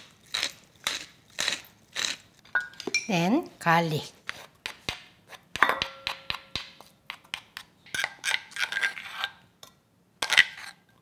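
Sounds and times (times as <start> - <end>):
spoon tapping bowl: 2.6 - 3.2, 5.6 - 6.7
spoon scraping mortar bowl: 7.1 - 9.4, 10.2 - 10.9.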